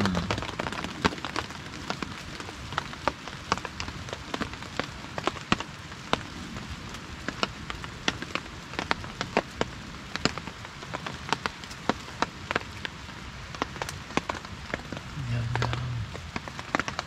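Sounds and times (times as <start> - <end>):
steady hiss: 12.4 - 17.0.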